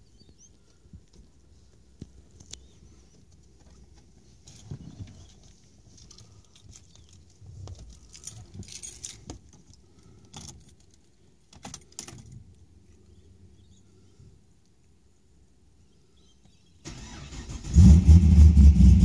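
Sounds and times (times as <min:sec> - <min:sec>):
car keys jangling: 0:06.0 - 0:12.4.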